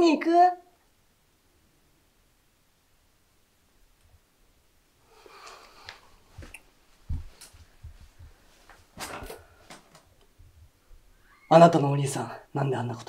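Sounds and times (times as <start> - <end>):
faint rustling: 5.0 - 11.5
footsteps on wooden floor: 5.9 - 9.8.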